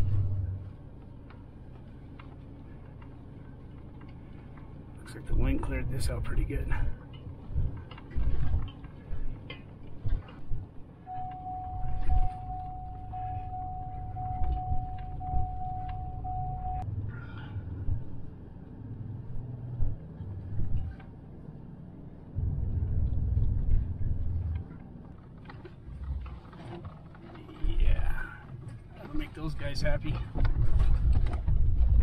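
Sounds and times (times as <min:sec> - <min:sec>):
truck engine and tyre rumble: 0:00.0 - 0:32.0
pulsing high tone: 0:11.1 - 0:16.8.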